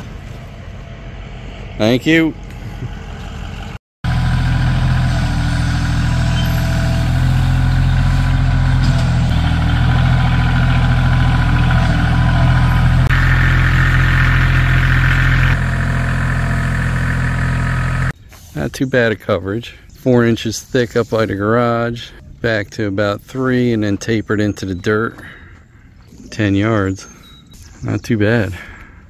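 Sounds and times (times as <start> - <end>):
diesel engine running: 0.0 - 18.2.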